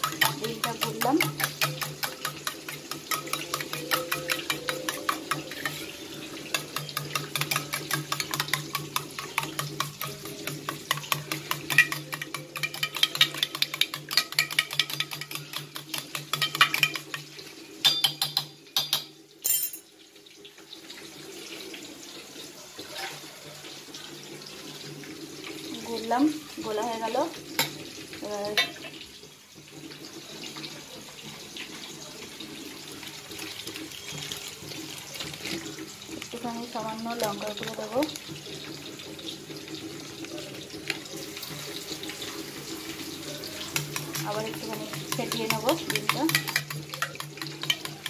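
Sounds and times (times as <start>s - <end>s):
spoon clinking in metal box: 0.0s - 5.9s, 6.5s - 17.2s, 17.8s - 19.8s, 43.8s - 48.0s.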